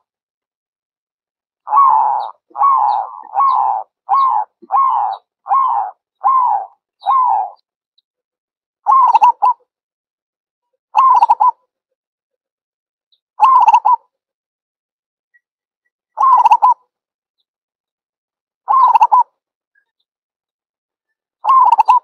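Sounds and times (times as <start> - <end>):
dove cooing: 1.7 - 7.6, 8.9 - 9.6, 11.0 - 11.6, 13.4 - 14.0, 16.2 - 16.8, 18.7 - 19.2, 21.4 - 22.0
rolling dove calls: 1.7 - 7.6, 8.9 - 9.6, 16.2 - 16.8, 18.7 - 19.2, 21.4 - 22.0.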